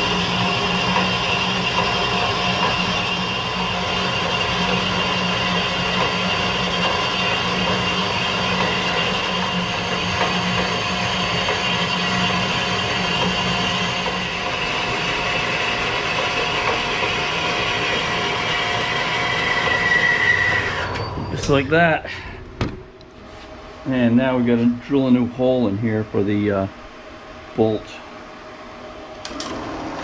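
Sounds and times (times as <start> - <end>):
band saw motor hum: 0.0 - 22.2, 28.8 - 30.0
saw blade whine: 0.0 - 22.4.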